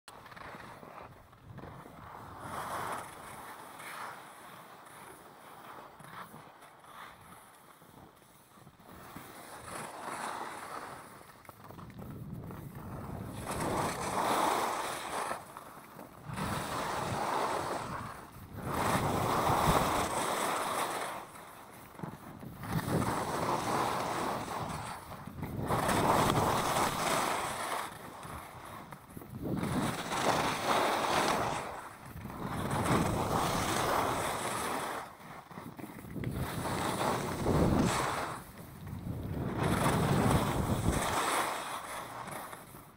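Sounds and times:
skis scraping on snow: 0:00.1 - 0:42.9
wind on microphone: 0:11.7 - 0:15.3, 0:16.2 - 0:21.0, 0:21.9 - 0:42.3.

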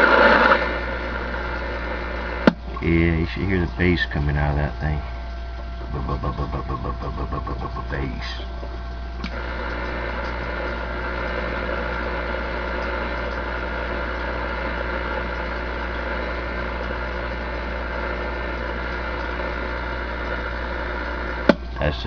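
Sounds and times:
low steady hum: 0:00.0 - 0:22.0
radio static hiss: 0:00.0 - 0:22.0.

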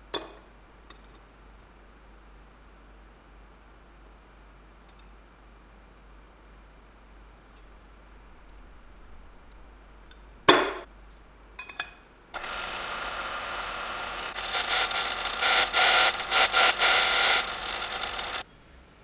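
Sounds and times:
hammer striking metal punch: 0:10.5 - 0:10.9
drill bit cutting steel: 0:12.4 - 0:18.4
drill press running: 0:12.4 - 0:18.4.

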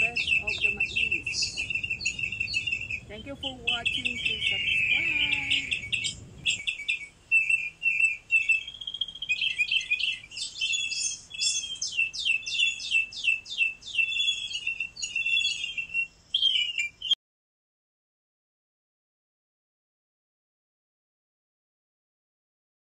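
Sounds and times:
songbirds chirping and singing: 0:00.0 - 0:17.2.

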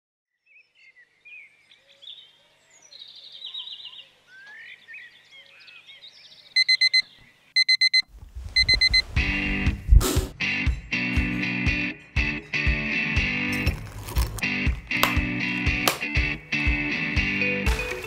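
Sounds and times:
birds chirping: 0:00.4 - 0:08.0
alarm clock beeping: 0:06.6 - 0:07.0, 0:07.6 - 0:09.0.

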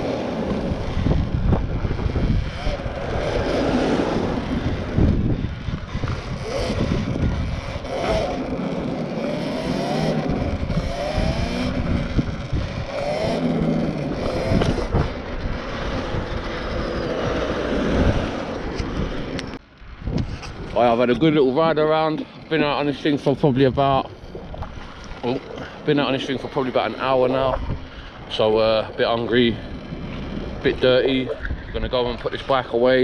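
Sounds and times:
electric motor whine: 0:00.0 - 0:19.6
wind buffeting microphone: 0:00.0 - 0:33.0.

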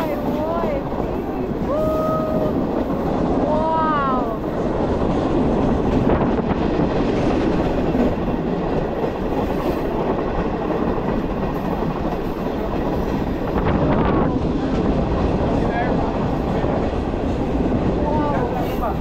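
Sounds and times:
train wheels rumbling: 0:00.0 - 0:19.0.

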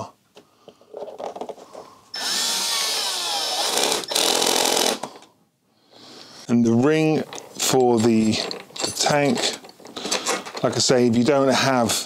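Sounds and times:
cordless screwdriver whining: 0:02.1 - 0:05.2.

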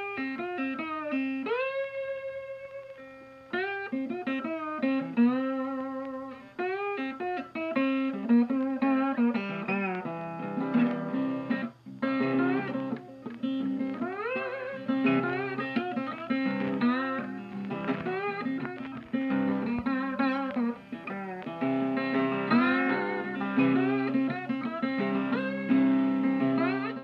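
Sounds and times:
guitar instrumental: 0:00.0 - 0:27.0.

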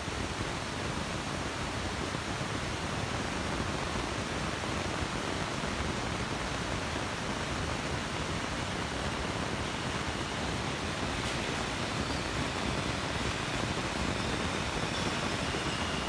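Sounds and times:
subway station rushing noise: 0:02.4 - 0:16.0
trains rumbling in tunnels: 0:08.2 - 0:16.0.

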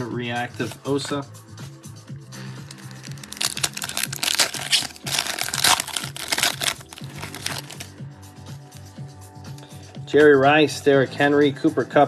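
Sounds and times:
background music: 0:00.0 - 0:12.0
foil wrapper crinkling and tearing: 0:02.7 - 0:07.9.

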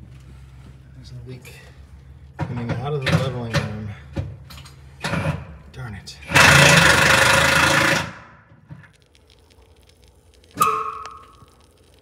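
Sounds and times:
sharp ringing hit: 0:10.6 - 0:11.4.

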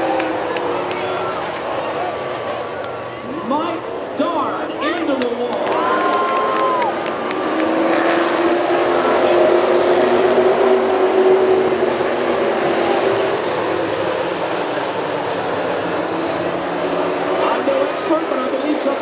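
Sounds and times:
stock car engines droning: 0:00.0 - 0:19.0.

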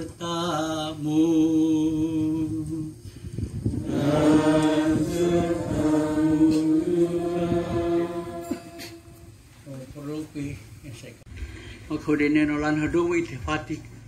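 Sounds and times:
liturgical chant singing: 0:00.0 - 0:02.9, 0:03.7 - 0:09.4.

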